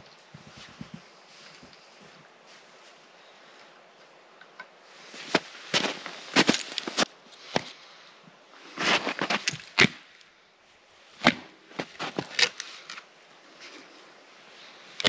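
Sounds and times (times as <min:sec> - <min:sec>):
axe chopping firewood: 0:11.2 - 0:12.6.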